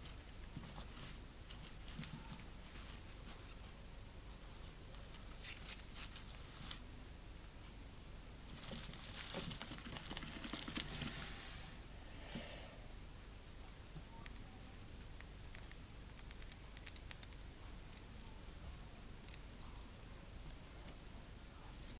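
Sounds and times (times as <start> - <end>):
gerbils squeaking: 3.2 - 3.8, 5.0 - 6.9, 8.5 - 11.2.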